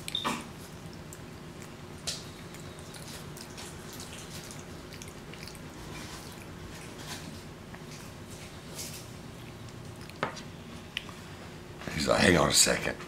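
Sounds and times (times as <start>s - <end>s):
monkey eating wet clicks: 0.0s - 7.0s
low room hum: 0.0s - 13.0s.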